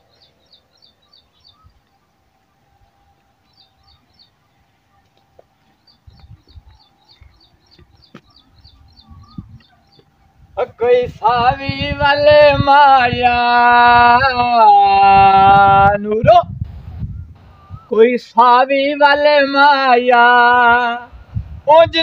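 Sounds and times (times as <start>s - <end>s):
small bird chirping: 0.0s - 2.1s, 3.5s - 10.2s.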